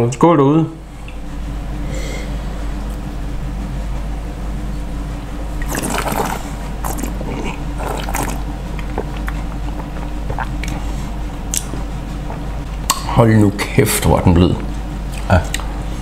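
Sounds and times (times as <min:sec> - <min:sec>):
wine slurping: 0:05.5 - 0:12.7
wet mouth clicks: 0:05.6 - 0:10.8, 0:11.5 - 0:13.0.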